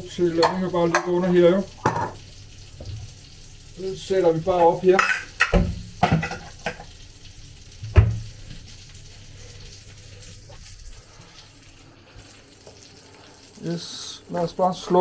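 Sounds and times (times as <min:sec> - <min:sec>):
patties sizzling in pan: 0:00.0 - 0:15.0
dishes knocking on counter: 0:01.8 - 0:02.2, 0:05.0 - 0:06.8, 0:07.9 - 0:08.2.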